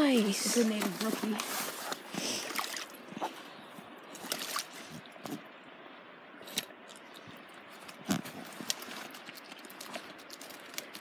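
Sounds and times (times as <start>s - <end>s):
stream trickling over rocks: 0.0s - 11.0s
splashes and knocks: 2.4s - 3.0s, 4.1s - 5.5s.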